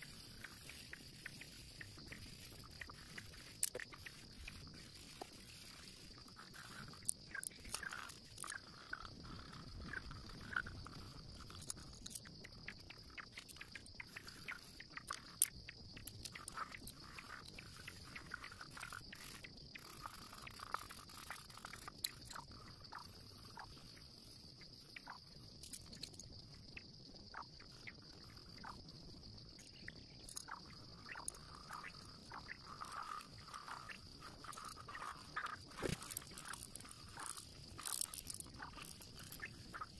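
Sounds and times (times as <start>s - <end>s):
steady high hiss: 0.0s - 26.6s.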